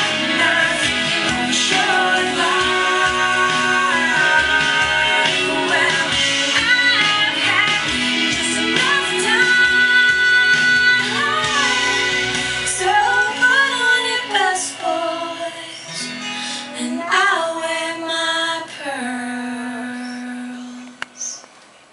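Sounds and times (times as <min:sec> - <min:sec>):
guitar: 0:00.0 - 0:21.4
woman singing country-pop song: 0:00.0 - 0:21.4
small child singing along: 0:16.7 - 0:18.5.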